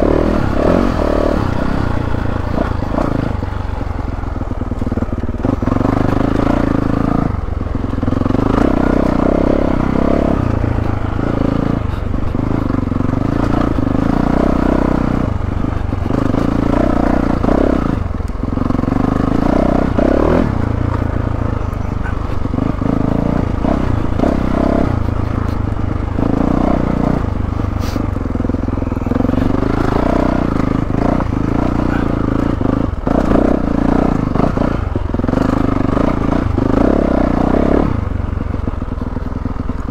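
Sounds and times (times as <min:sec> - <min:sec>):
dirt bike engine revving: 0:00.0 - 0:39.9
knocks and clatter over bumps: 0:00.0 - 0:39.9.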